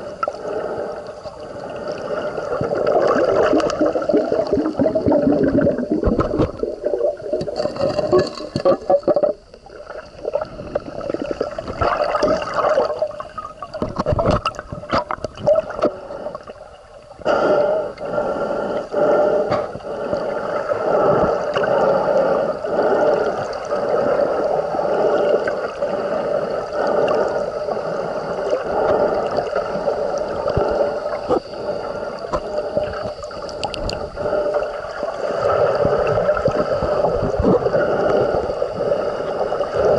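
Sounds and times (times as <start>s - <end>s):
water gurgling underwater: 2.0s - 17.2s, 28.4s - 39.9s.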